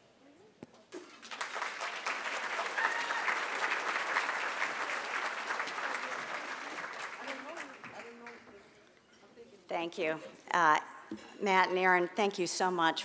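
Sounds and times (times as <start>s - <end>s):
audience applauding: 1.1s - 8.6s.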